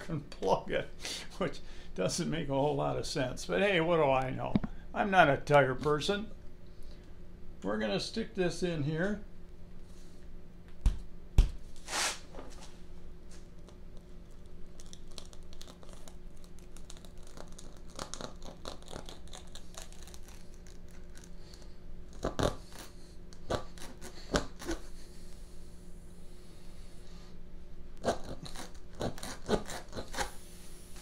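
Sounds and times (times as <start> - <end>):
rubbery scraping and rasping: 28.0 - 30.4.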